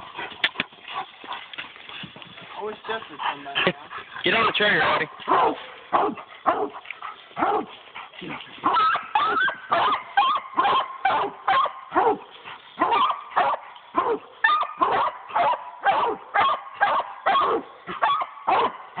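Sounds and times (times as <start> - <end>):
dog barking: 4.4 - 6.8, 7.4 - 7.7, 8.6 - 12.2, 12.8 - 19.0.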